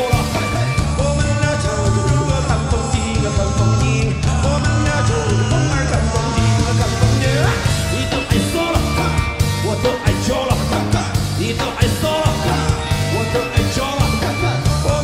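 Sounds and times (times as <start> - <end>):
drums: 0.0 - 15.0
electric bass: 0.0 - 15.0
sliding lead melody: 0.0 - 15.0.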